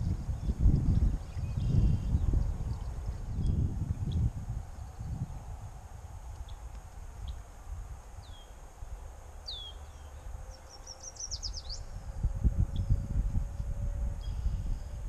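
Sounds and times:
wind rumbling on microphone: 0:00.0 - 0:15.0
songbird calling: 0:01.2 - 0:04.2, 0:08.2 - 0:08.6, 0:09.4 - 0:12.1, 0:14.2 - 0:15.0.

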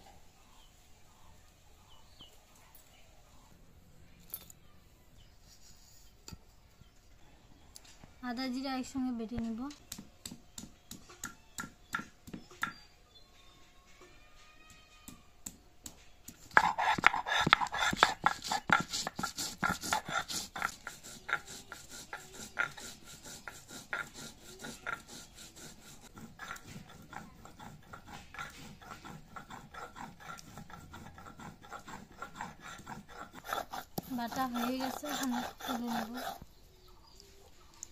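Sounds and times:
stone roller scraping on slab: 0:16.4 - 0:36.5.

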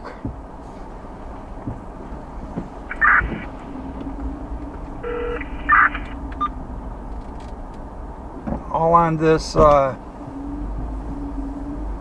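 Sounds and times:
low steady rumble: 0:00.0 - 0:12.0
short electronic beeps: 0:05.0 - 0:06.5.

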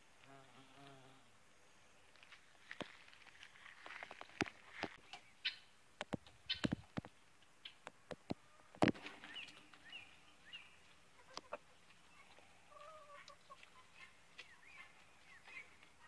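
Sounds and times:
chickens clucking: 0:07.6 - 0:16.0.

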